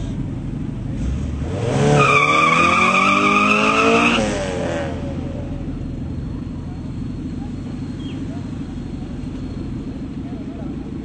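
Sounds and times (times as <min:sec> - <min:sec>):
race car engines revving: 0:00.0 - 0:11.0
tyre squeal: 0:02.0 - 0:04.2.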